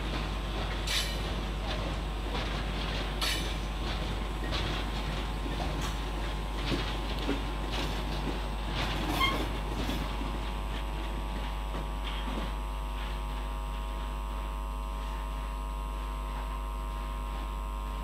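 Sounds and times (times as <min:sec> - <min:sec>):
train wheels clattering on rails: 0:00.0 - 0:17.1
microphone electrical hum: 0:05.2 - 0:18.0
wheel squeal: 0:09.1 - 0:09.5.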